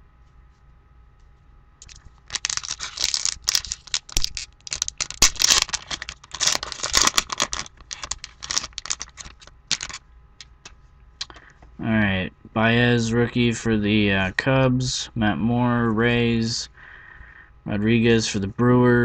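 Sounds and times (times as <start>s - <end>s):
card pack wrapper tearing: 1.8s - 10.5s.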